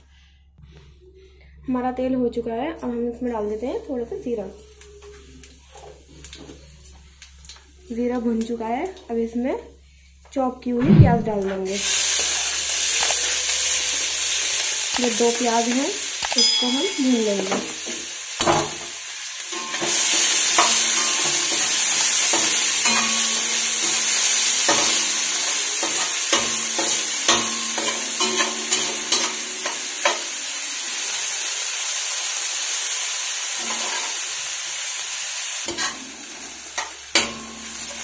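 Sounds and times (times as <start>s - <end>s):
onions sizzling in hot oil: 11.7s - 38.0s.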